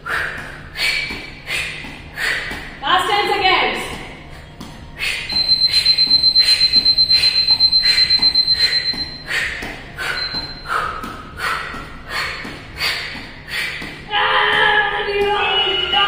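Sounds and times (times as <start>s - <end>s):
quick rhythmic exhaled breaths: 0.0s - 2.8s, 4.1s - 14.1s
electronic timer beeping: 5.2s - 11.0s.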